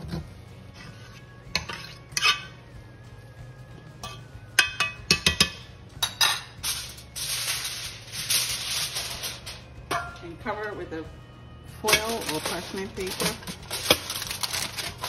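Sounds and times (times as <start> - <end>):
fork clinking and scraping in pot: 0.0 - 2.6, 4.0 - 10.2, 11.8 - 15.0
aluminium foil crinkling: 6.6 - 9.7, 11.8 - 15.0.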